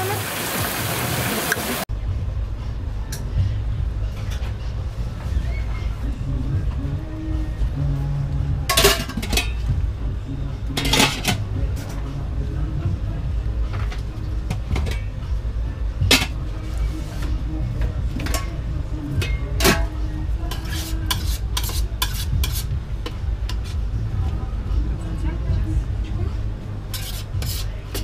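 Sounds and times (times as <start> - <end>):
metal utensils clinking on cookware: 8.7 - 9.7, 10.7 - 11.4, 16.1 - 16.4, 18.1 - 22.7, 26.9 - 28.0.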